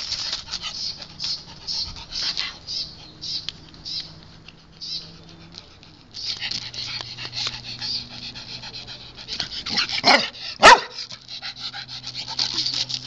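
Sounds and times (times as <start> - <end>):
dog panting: 0.0 - 13.0
dog barking: 10.0 - 11.0.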